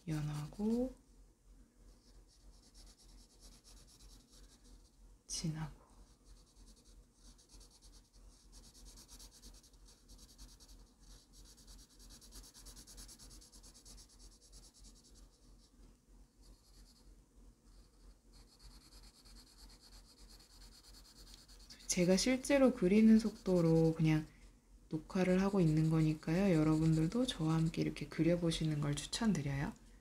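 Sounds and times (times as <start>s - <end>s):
pencil scratching on paper: 0.1s - 0.9s, 2.0s - 5.0s, 6.0s - 15.7s, 16.4s - 17.0s, 17.7s - 24.3s, 25.1s - 28.0s.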